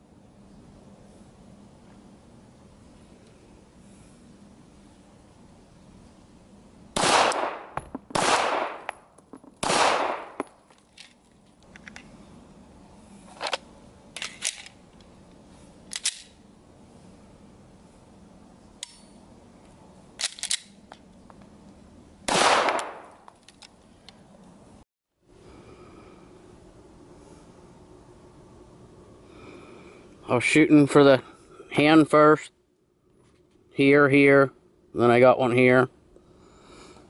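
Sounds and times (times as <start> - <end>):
pistol shots: 7.0 - 9.0, 9.6 - 10.5, 22.3 - 23.1
pistol handling clicks and knocks: 7.3 - 8.2, 8.8 - 9.6, 10.2 - 12.1, 14.2 - 15.1, 15.9 - 16.4, 20.2 - 21.2.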